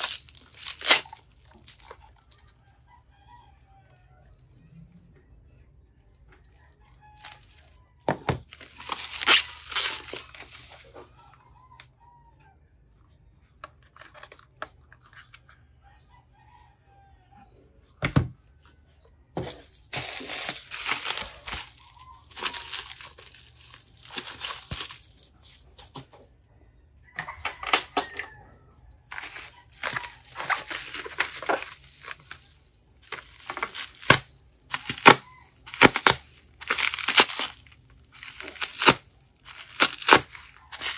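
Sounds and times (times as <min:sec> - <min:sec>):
bubble wrap crinkling and tearing: 0:00.0 - 0:02.4, 0:07.1 - 0:11.0, 0:19.4 - 0:26.2, 0:29.0 - 0:40.9.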